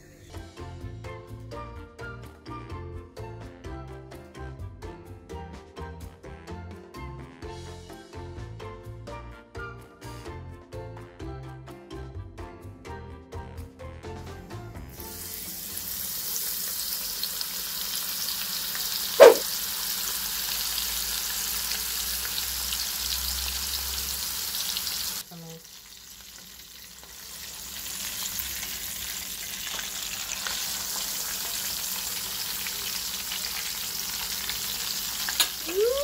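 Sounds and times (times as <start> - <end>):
fish sizzling in oil: 15.0 - 36.0.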